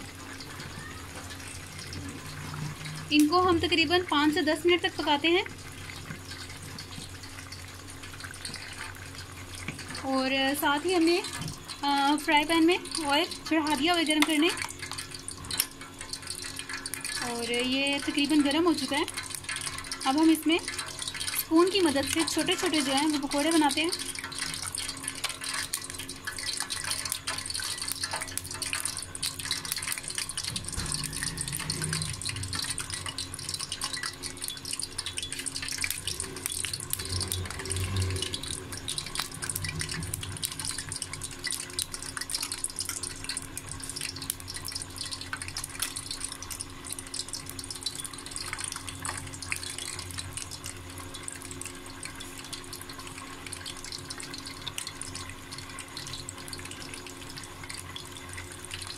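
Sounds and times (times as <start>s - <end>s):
batter sizzling in hot oil: 0.0s - 58.9s.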